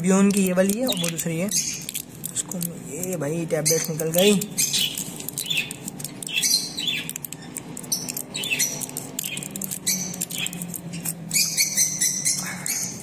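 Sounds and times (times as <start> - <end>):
plastic bag crinkling: 0.0 - 11.6
parrots chirping: 0.5 - 2.3, 3.4 - 13.0
capsules pressed from blister pack: 3.8 - 11.4.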